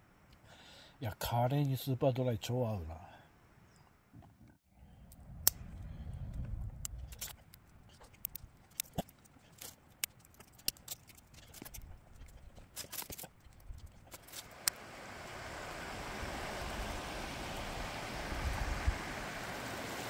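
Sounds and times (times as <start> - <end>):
low rumble: 4.8 - 7.4
sharp clicks and ticks: 5.1 - 14.8.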